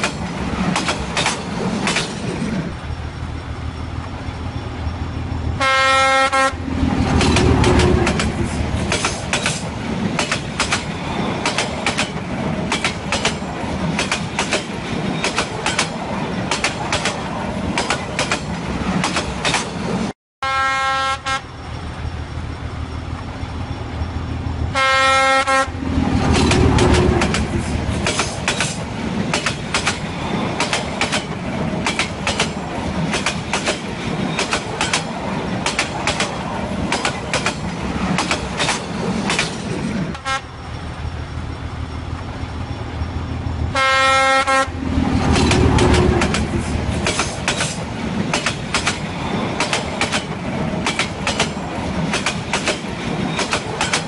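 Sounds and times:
train wheels rumbling over rails: 0:00.0 - 0:20.1, 0:21.4 - 0:54.0
train horn blast: 0:05.6 - 0:06.7, 0:20.4 - 0:21.5, 0:24.7 - 0:25.8, 0:40.1 - 0:40.5, 0:43.7 - 0:44.8.

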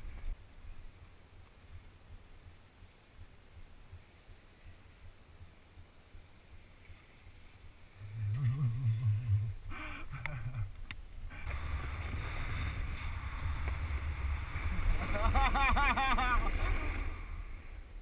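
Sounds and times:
wind on microphone: 0:07.9 - 0:18.0
snowboard scraping through snow: 0:11.4 - 0:18.0.

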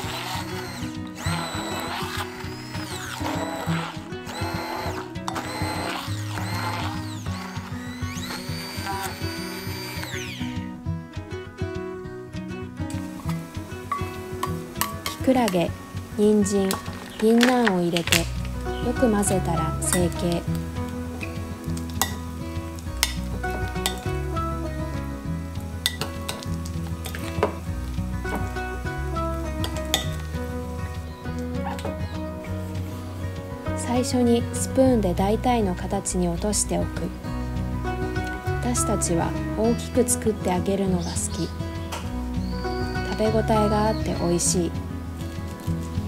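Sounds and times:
immersion blender motor whirring: 0:00.0 - 0:10.6
background music: 0:00.0 - 0:46.0.

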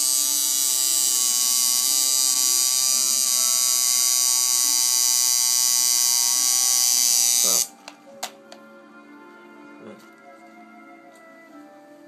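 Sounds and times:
tattoo machine buzzing: 0:00.0 - 0:07.8.

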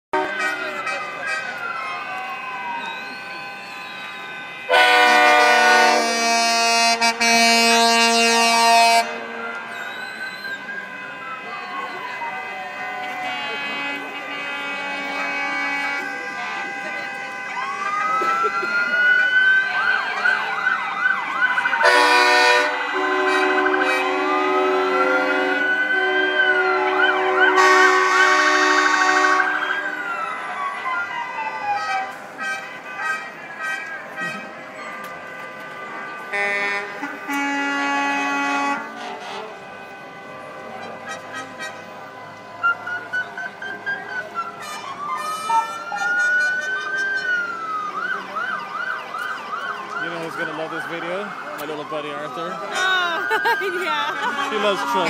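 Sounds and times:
truck air horn blast: 0:00.1 - 0:01.6, 0:04.4 - 0:18.9, 0:21.8 - 0:30.1, 0:31.8 - 0:42.0
sirens wailing and yelping: 0:00.2 - 0:55.0.

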